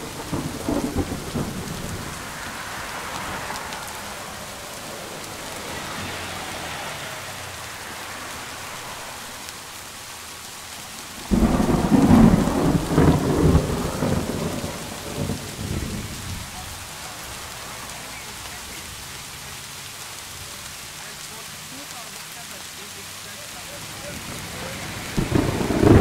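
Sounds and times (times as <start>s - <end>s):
thunder clap rolling and rumbling: 0.0s - 5.9s, 11.2s - 16.9s, 24.1s - 26.0s
steady rain hiss: 0.0s - 26.0s.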